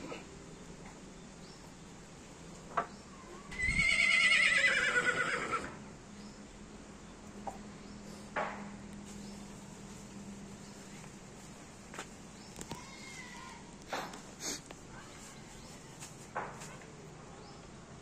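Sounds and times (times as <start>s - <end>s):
horse whinnying: 3.5s - 5.8s.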